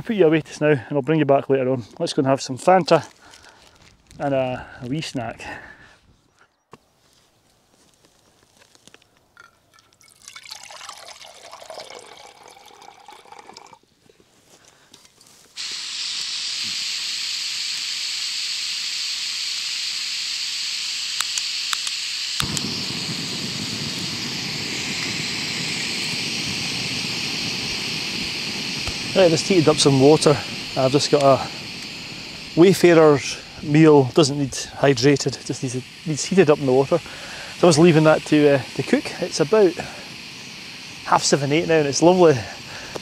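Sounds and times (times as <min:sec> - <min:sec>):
gas burner roaring: 0:15.6 - 0:43.0
gas valve hissing: 0:15.6 - 0:43.0
igniter clicks: 0:21.1 - 0:43.0.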